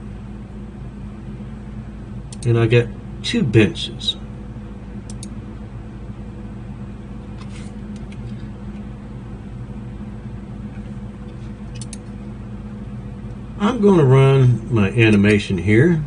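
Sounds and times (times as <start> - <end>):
low hum: 0.0 - 16.0
computer mouse clicking: 5.1 - 5.3, 11.7 - 12.1.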